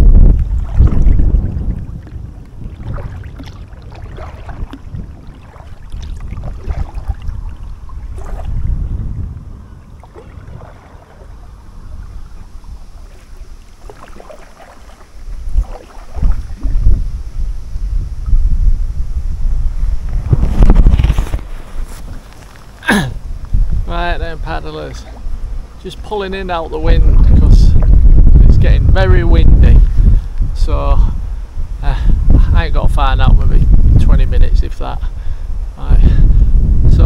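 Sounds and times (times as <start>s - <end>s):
wind buffeting microphone: 0.0s - 37.0s
paddle splashing in water: 0.3s - 8.7s, 9.8s - 17.0s.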